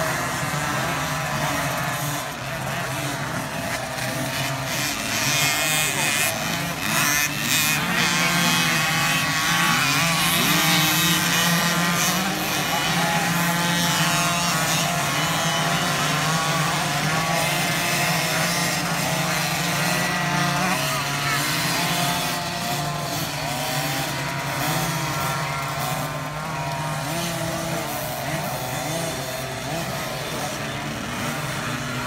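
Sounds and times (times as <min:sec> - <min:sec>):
motocross bikes revving: 0:00.0 - 0:32.0.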